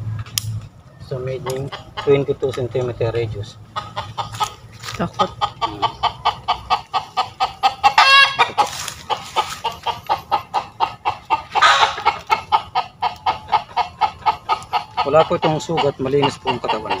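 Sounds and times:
chickens clucking in alarm: 0.8s - 17.0s
chicken squawk: 3.7s - 17.0s.

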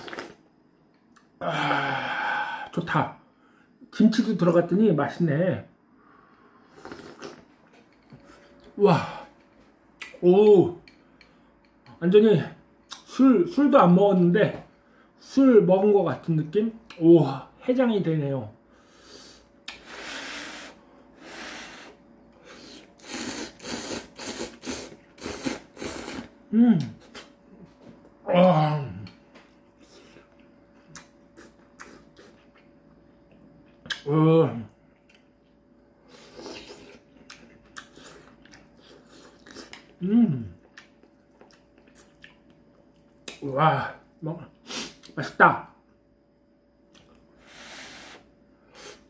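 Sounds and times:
person slurping noodles: 0.0s - 0.4s, 6.7s - 7.4s, 19.0s - 26.4s
chewing and lip smacks: 29.7s - 32.7s, 36.4s - 40.0s, 40.6s - 43.4s.

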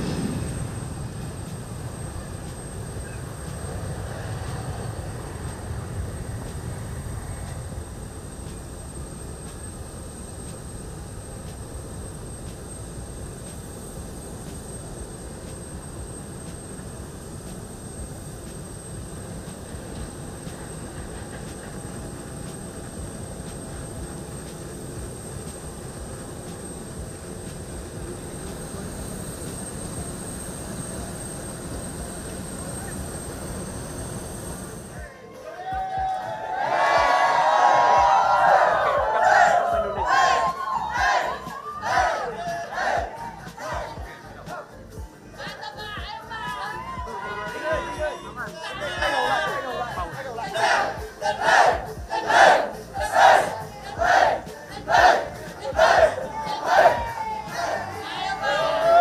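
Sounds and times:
aircraft engines rumbling: 0.0s - 35.2s, 36.4s - 59.0s
faint high whine: 0.0s - 43.2s.

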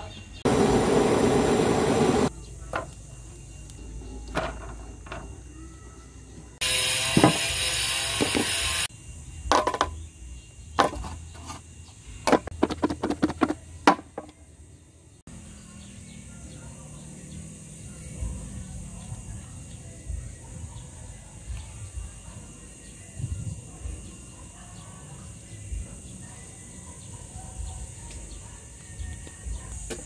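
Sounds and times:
butane torch hissing: 0.5s - 2.3s, 6.6s - 8.9s.

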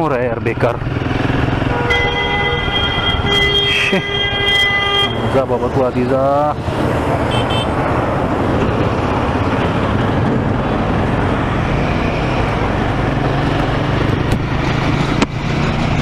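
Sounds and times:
motorcycle engine accelerating: 0.2s - 5.7s, 6.6s - 16.0s
wind rushing over microphone: 5.1s - 16.0s.

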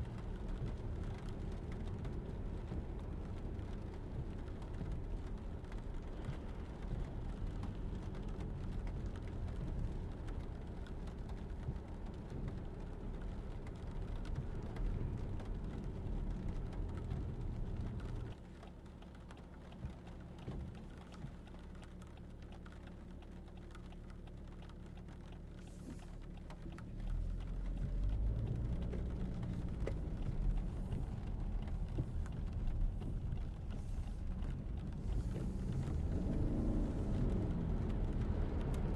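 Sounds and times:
rain ticking on car: 0.0s - 38.9s
tyre and road rumble: 22.7s - 38.9s.

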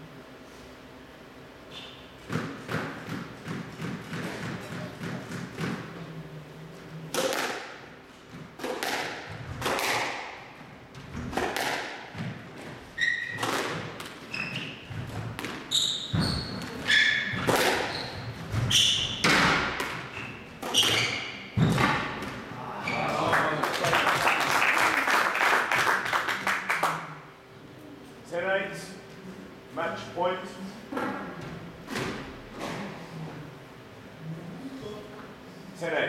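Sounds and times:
squash ball striking rackets and walls: 2.2s - 6.0s, 7.1s - 22.5s, 31.0s - 33.0s
shoe squeaks on court floor: 13.0s - 13.4s, 14.3s - 15.0s, 15.7s - 19.3s, 20.0s - 21.7s.

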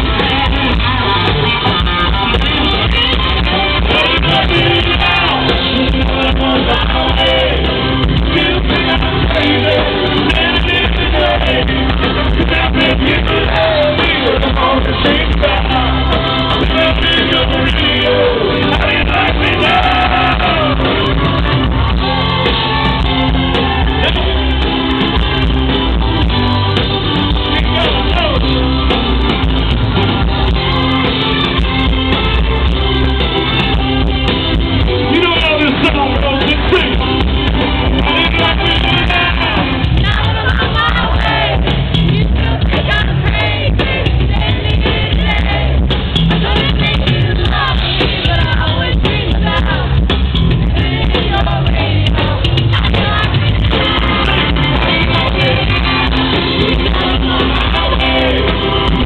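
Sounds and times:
man singing: 0.0s - 21.6s, 27.4s - 28.8s, 35.0s - 41.6s, 46.4s - 49.8s, 50.6s - 59.0s
live country band: 0.0s - 59.0s.

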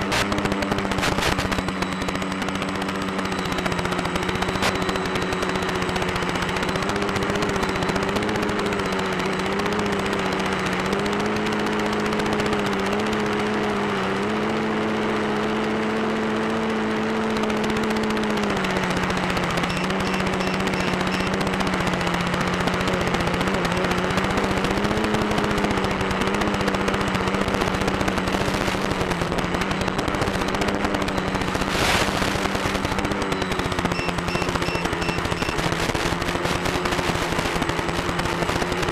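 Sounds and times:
drone motor buzzing: 0.0s - 13.6s, 17.4s - 38.9s
short crackle: 31.3s - 33.0s.

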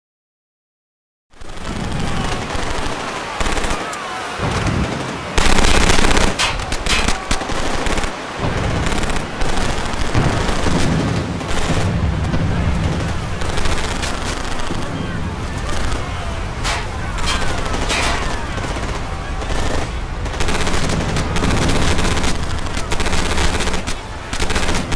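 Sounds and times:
machine-gun bursts: 1.4s - 15.0s, 15.6s - 24.9s.

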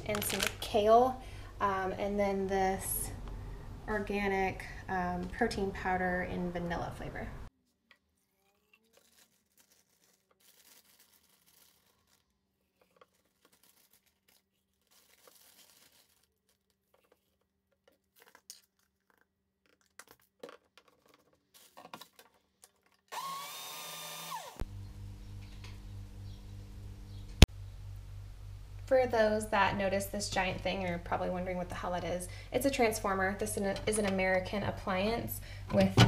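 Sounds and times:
steady low hum: 0.0s - 7.5s, 24.6s - 36.0s
blender motor whining: 23.1s - 24.7s.

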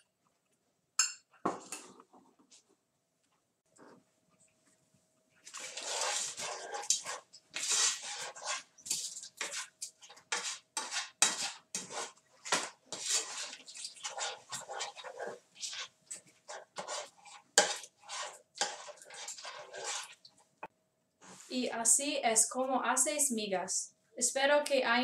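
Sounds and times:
utensil scraping in frying pan: 5.4s - 20.3s.

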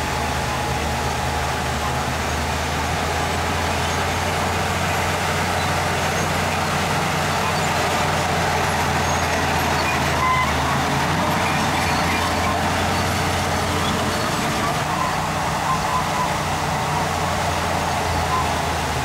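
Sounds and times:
diesel machinery engine drone: 0.0s - 19.0s
short high squeak: 5.6s - 18.7s.

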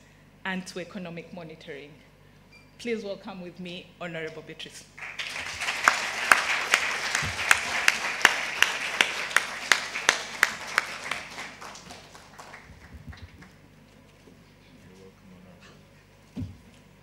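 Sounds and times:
audience applauding: 5.0s - 13.6s
close sharp claps: 5.0s - 13.6s.

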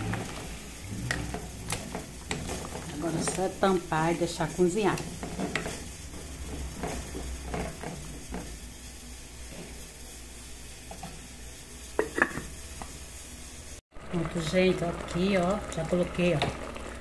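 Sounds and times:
ladle stirring vegetables in a pot: 0.0s - 13.3s
low cooking hiss: 0.0s - 17.0s.

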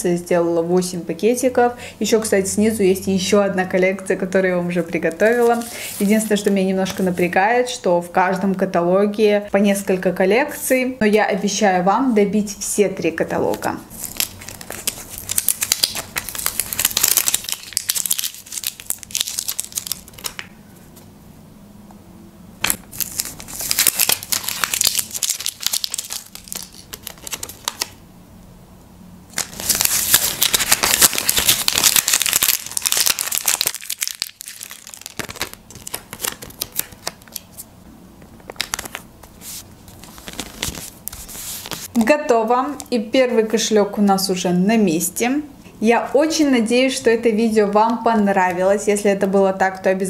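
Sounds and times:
paper stickers crinkling: 5.0s - 7.2s, 13.5s - 20.5s, 22.6s - 28.0s, 29.3s - 37.7s, 38.3s - 42.0s.

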